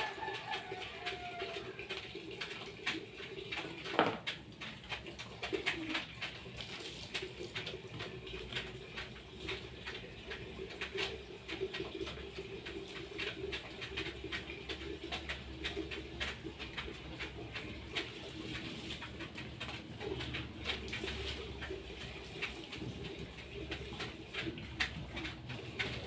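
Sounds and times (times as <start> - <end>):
pigeons cooing: 5.1 - 8.3.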